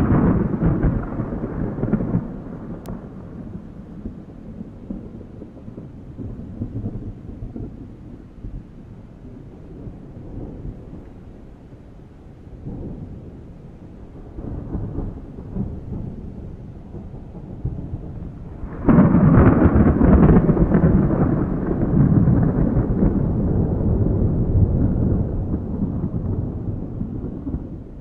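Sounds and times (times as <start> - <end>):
loud thunder peal: 0.0 - 8.3, 14.1 - 28.0
thunder rumbling: 0.0 - 28.0.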